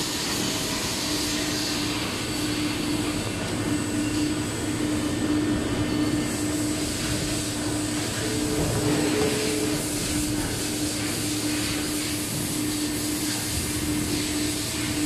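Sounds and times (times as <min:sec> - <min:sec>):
workshop machinery running: 0:00.0 - 0:15.0.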